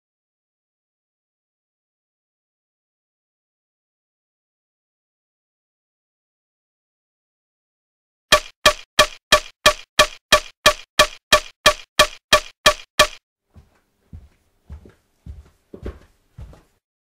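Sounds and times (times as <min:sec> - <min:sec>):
clock ticking: 0:08.3 - 0:13.2.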